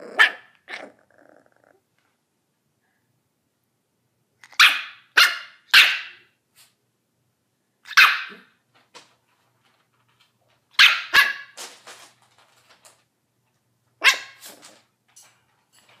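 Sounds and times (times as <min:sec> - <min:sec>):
puppy yapping: 0:00.0 - 0:01.0, 0:04.4 - 0:06.3, 0:07.9 - 0:08.5, 0:10.8 - 0:11.6, 0:14.0 - 0:14.6.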